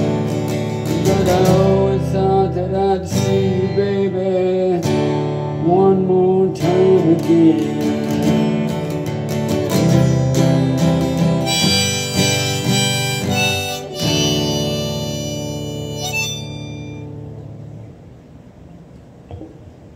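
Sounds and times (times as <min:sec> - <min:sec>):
strummed acoustic guitar: 0:00.0 - 0:17.8
harmonica: 0:09.8 - 0:17.3.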